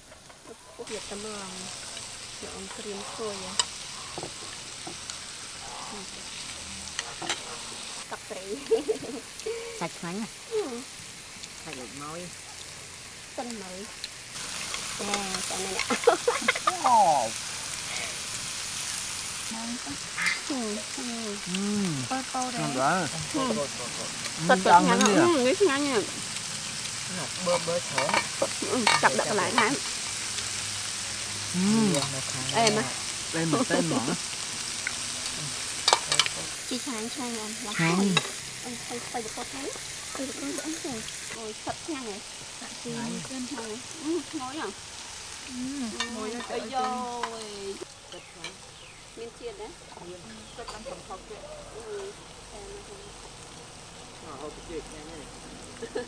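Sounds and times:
beef sizzling on grill pan: 0.0 - 56.0
metal tongs clicking on pan: 3.5 - 3.8, 13.5 - 16.0, 35.8 - 36.4.

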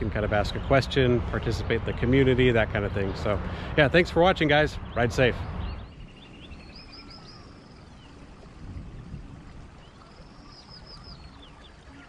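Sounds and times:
bird chirps: 4.8 - 12.0
low steady hum: 5.4 - 12.0.

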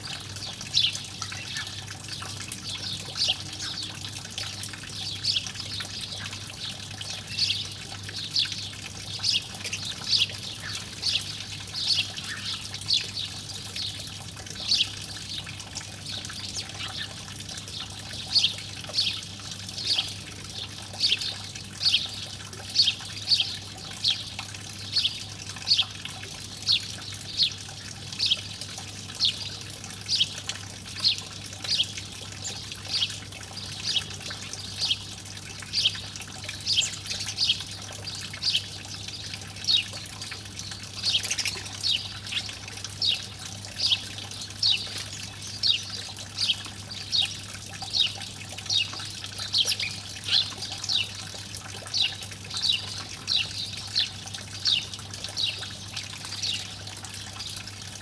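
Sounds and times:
sparrow chirping: 49.5 - 51.1.

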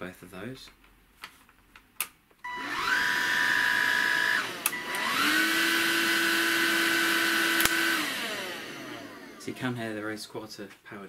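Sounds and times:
vacuum cleaner motor whine: 2.5 - 9.8
vacuum switch click: 4.5 - 5.2, 7.5 - 8.1.

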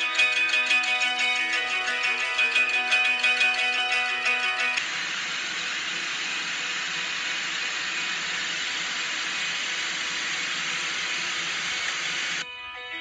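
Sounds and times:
guitar music: 0.0 - 4.8, 12.4 - 13.0.

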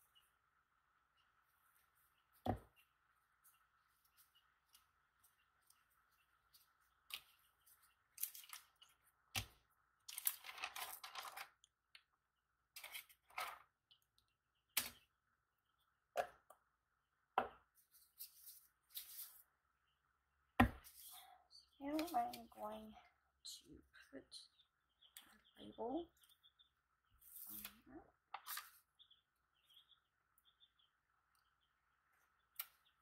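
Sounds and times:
paper rustling and crinkling: 10.1 - 11.5.

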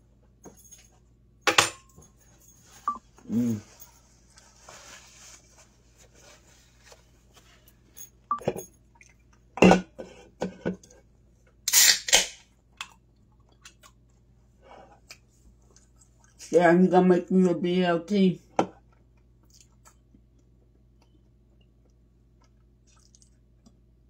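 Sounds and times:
kitchen knocks and clinks: 1.5 - 2.2, 9.6 - 10.9
rustling: 2.4 - 8.0.

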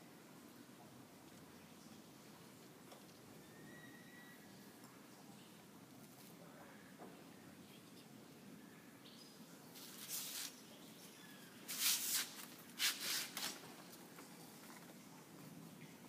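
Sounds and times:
low background hum: 0.0 - 11.8
leaves rustling against camera: 9.7 - 15.0.

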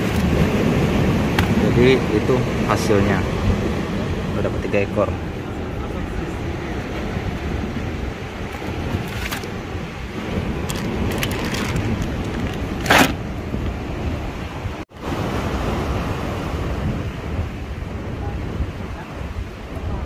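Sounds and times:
wind buffeting microphone: 0.0 - 20.0.

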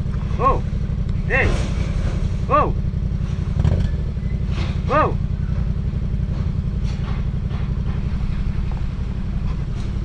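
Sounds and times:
motorcycle engine idling: 0.0 - 10.0.

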